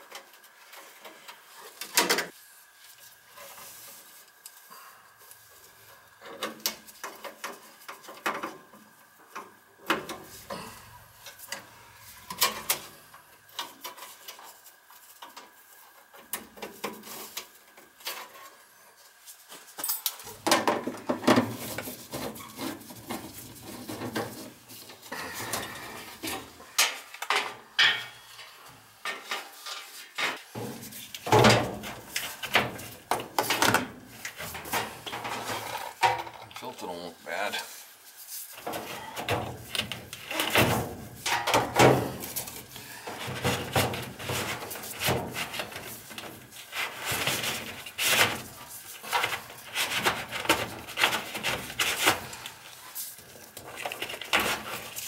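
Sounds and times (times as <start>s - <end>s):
faint steady whine: 0.0s - 49.7s
tools clattering on metal cabinet: 25.4s - 28.2s, 40.3s - 42.4s.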